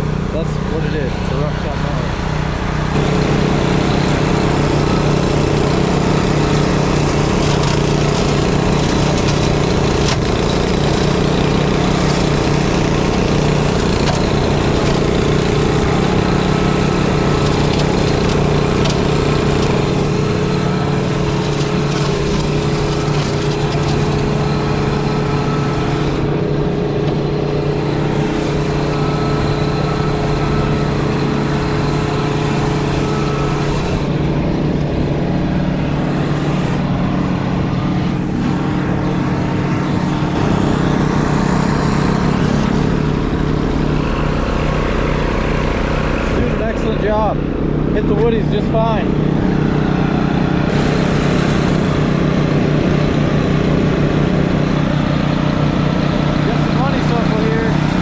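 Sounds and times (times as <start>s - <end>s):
engines droning: 0.0s - 58.0s
mower cutting dry grass: 0.0s - 58.0s.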